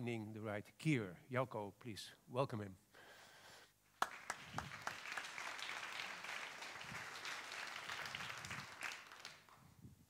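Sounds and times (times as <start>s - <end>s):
audience applause: 4.0s - 9.6s.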